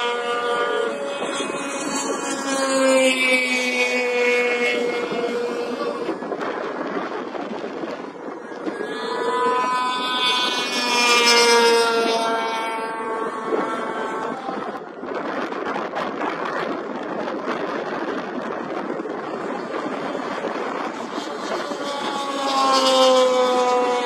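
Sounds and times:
snowmobile engines whining: 0:00.0 - 0:24.0.

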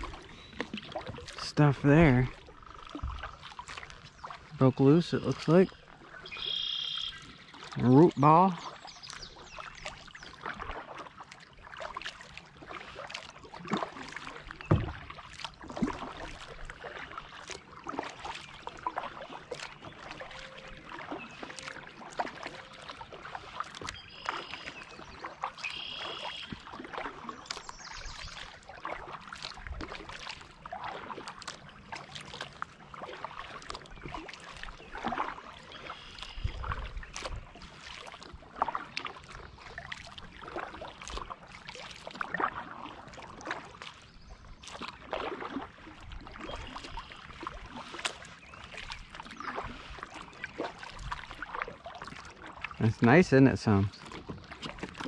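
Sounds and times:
paddle splashing in water: 0:00.0 - 0:55.0
dull knock: 0:14.7 - 0:15.0.

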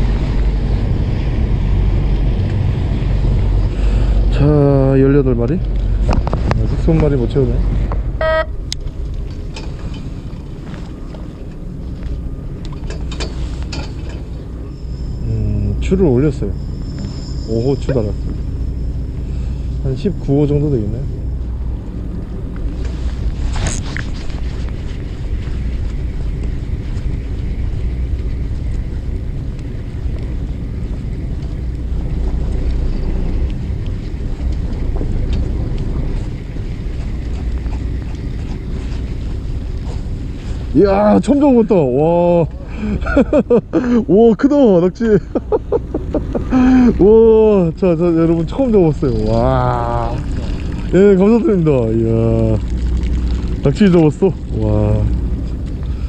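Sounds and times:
wind on microphone: 0:00.0 - 0:12.8
wind buffeting microphone: 0:00.0 - 0:14.7, 0:15.6 - 0:43.8
boat engine rumbling: 0:00.0 - 0:56.0.

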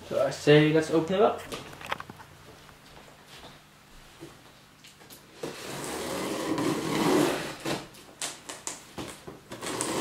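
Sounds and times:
scissors cutting packing tape: 0:09.5 - 0:10.0.

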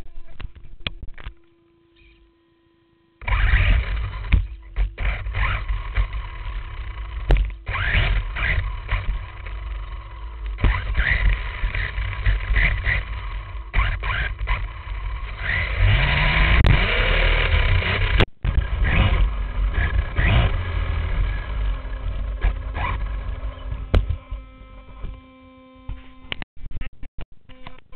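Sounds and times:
electric motor whine: 0:00.1 - 0:26.4
rc truck rattling rumble: 0:03.2 - 0:25.2.

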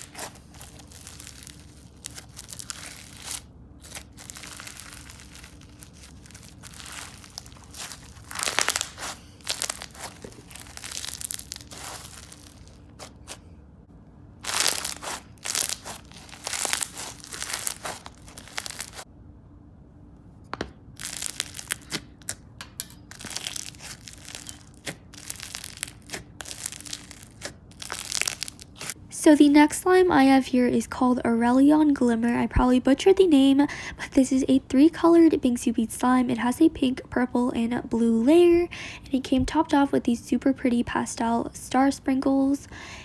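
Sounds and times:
foam slime crunching and crackling: 0:00.0 - 0:13.5, 0:14.4 - 0:19.1, 0:21.0 - 0:22.4, 0:23.1 - 0:29.0.

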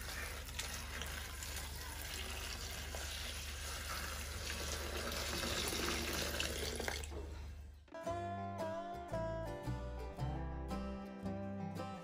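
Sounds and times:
water pouring into steel bowl: 0:00.0 - 0:07.1.

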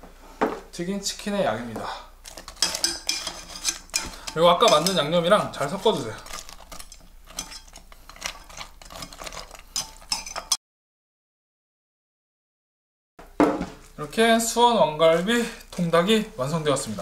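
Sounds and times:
metal tongs clinking on a pot: 0:02.2 - 0:10.6.

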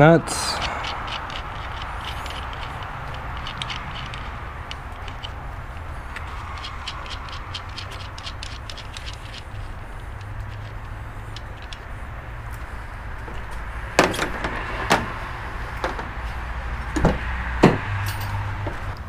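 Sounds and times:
steady low rumble: 0:00.0 - 0:17.2
car door opening: 0:13.2 - 0:15.2.

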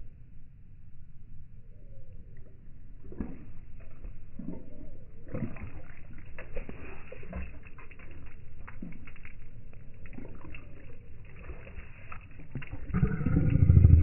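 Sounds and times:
puppy lapping water: 0:02.3 - 0:14.0
puppy licking its chops: 0:03.0 - 0:13.1.

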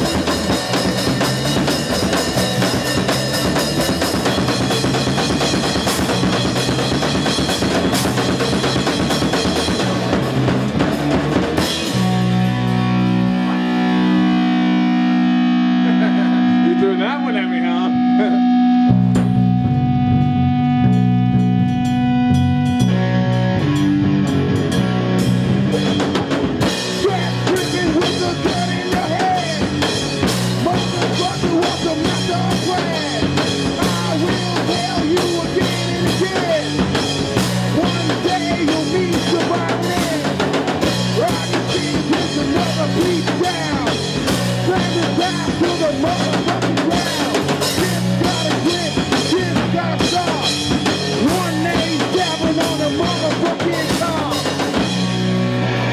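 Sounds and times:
drum kit: 0:00.0 - 0:55.9
electric guitar and bass riff: 0:00.0 - 0:55.9
man singing: 0:26.9 - 0:29.9, 0:30.5 - 0:54.8.

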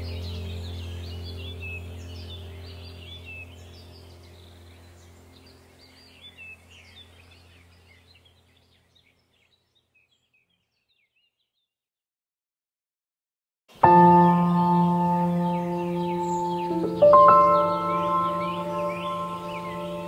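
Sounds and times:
ambient drone music: 0:00.0 - 0:08.0, 0:13.8 - 0:20.0
birdsong chirping: 0:00.0 - 0:11.7, 0:13.7 - 0:20.0.

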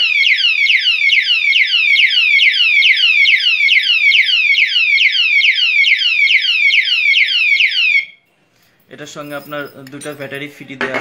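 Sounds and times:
padlock siren falling sweeps: 0:00.0 - 0:08.1.

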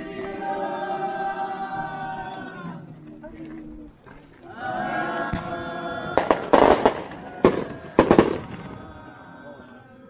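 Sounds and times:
people singing together: 0:00.0 - 0:10.0
firecrackers banging: 0:06.1 - 0:09.0.

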